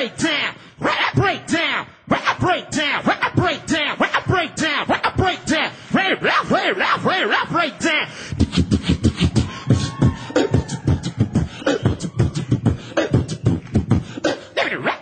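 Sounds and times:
beatboxing into microphone: 0.0 - 15.0.

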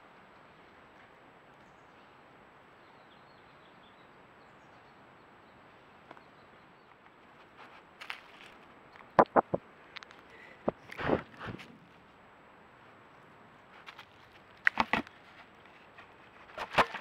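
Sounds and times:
faint background hiss: 0.0 - 17.0
faint bird chirps: 1.6 - 7.1.

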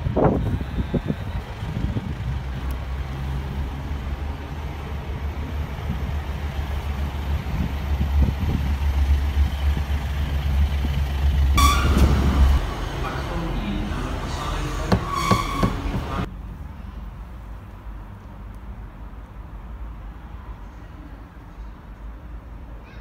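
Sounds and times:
train engine droning: 0.0 - 16.3
train horn: 11.6 - 16.3.

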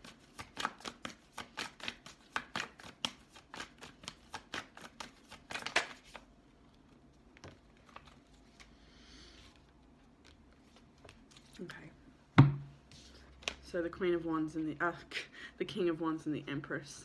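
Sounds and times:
cards being shuffled: 0.0 - 8.8, 9.5 - 11.7.

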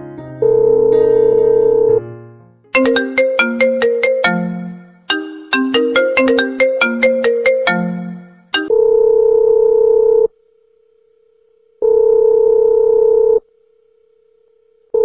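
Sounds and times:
telephone ringback tone: 0.4 - 2.0, 2.8 - 10.3
marimba ringtone melody: 2.8 - 8.7.

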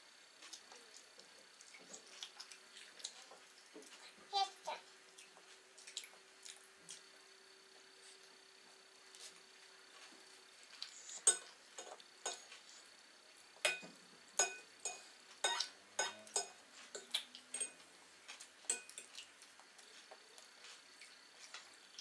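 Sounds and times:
cutlery and dishes clinking: 11.2 - 12.5, 13.7 - 17.8, 18.7 - 19.2.

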